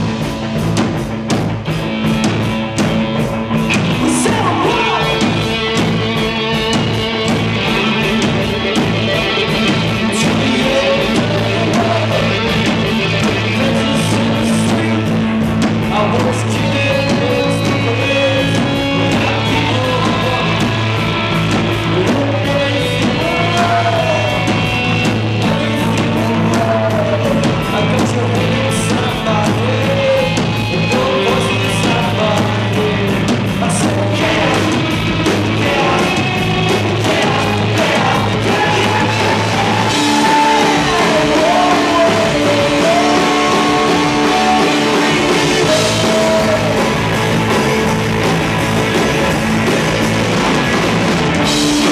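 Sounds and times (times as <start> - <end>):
drum kit: 0.0 - 51.9
electric bass: 0.0 - 51.9
electric guitars: 0.0 - 51.9
person singing: 3.6 - 51.9.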